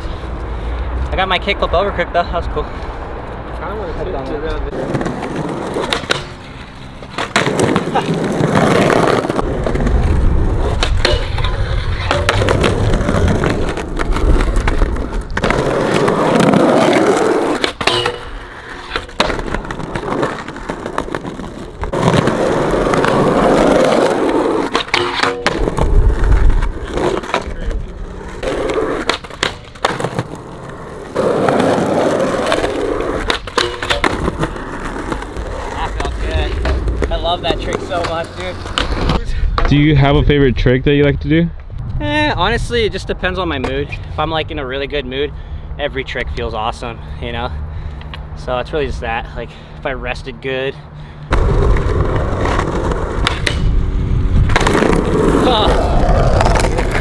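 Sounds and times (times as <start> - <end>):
skateboard wheels rolling on concrete: 0.0 - 57.0
skateboard clacks: 4.7 - 6.4, 7.0 - 39.8, 51.3 - 53.8, 54.5 - 57.0.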